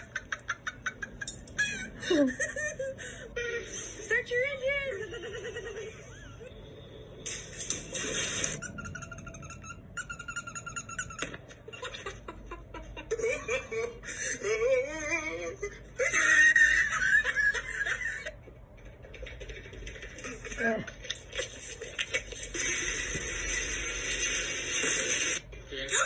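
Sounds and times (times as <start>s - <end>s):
elderly woman laughing: 0.0s - 4.0s, 4.9s - 6.5s, 11.7s - 18.4s.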